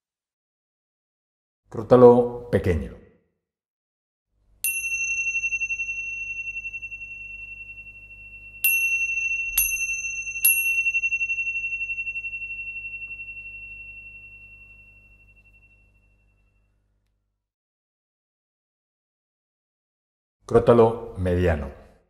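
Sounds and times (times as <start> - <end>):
small cymbals ringing: 4.6 - 16.8.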